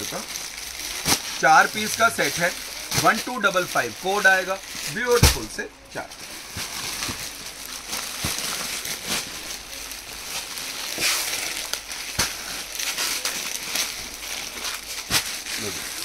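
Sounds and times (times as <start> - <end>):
fabric rustling: 0.0 - 16.0
plastic packaging crinkling: 0.0 - 16.0.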